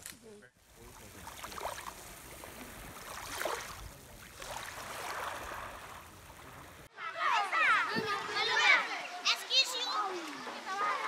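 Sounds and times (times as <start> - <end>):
sea waves washing on shore: 0.6 - 6.9.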